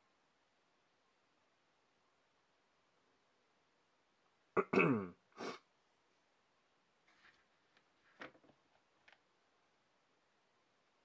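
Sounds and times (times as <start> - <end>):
person clearing throat: 4.6 - 5.6.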